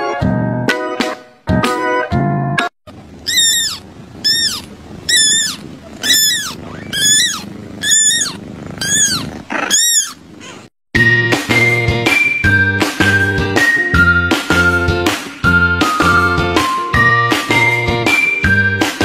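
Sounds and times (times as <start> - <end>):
kitten mewing: 3.2 - 10.8.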